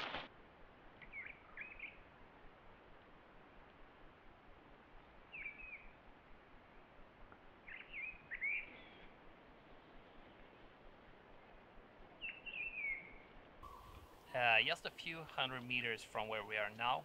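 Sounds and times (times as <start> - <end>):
faint outdoor hiss: 0.0 - 17.0
short bird calls: 1.0 - 2.1, 5.3 - 6.0, 7.6 - 9.2, 12.2 - 14.4.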